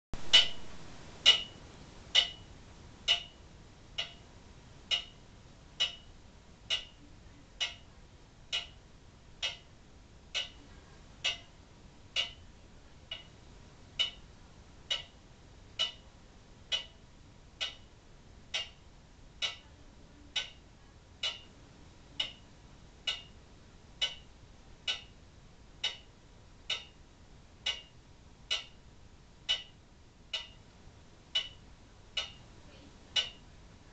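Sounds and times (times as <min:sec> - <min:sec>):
clock ticking: 0:00.2 - 0:33.5.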